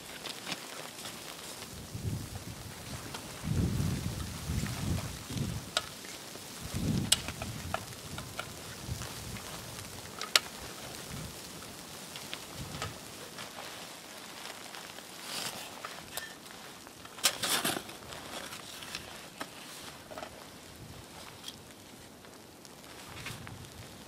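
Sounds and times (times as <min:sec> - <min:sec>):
soft outdoor hiss: 0:00.0 - 0:24.0
wind buffeting microphone: 0:01.6 - 0:13.2, 0:22.9 - 0:24.0.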